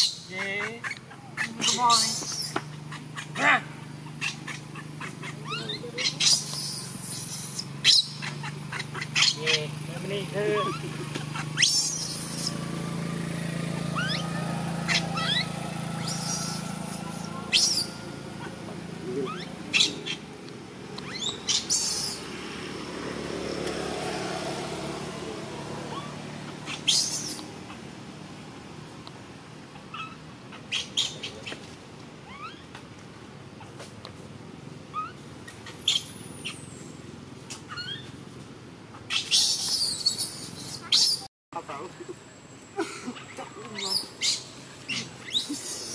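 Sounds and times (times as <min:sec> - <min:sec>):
monkey high squeaks: 0:00.0 - 0:03.4, 0:04.0 - 0:09.7, 0:10.5 - 0:12.6, 0:13.9 - 0:18.6, 0:19.2 - 0:20.3, 0:21.0 - 0:22.2, 0:25.9 - 0:27.8, 0:29.8 - 0:32.8, 0:34.9 - 0:36.7, 0:37.6 - 0:38.2, 0:39.0 - 0:41.3, 0:43.2 - 0:45.9
background hiss: 0:01.0 - 0:24.1, 0:26.8 - 0:45.9.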